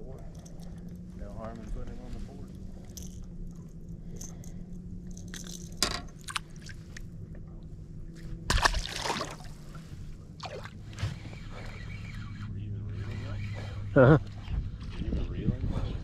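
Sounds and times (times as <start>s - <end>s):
low steady hum: 0.0s - 16.0s
fish splashing into water: 8.5s - 9.6s.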